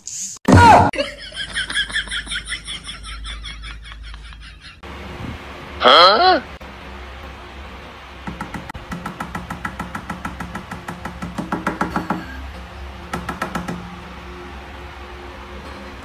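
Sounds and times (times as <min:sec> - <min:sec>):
light tapping: 0:08.3 - 0:12.4.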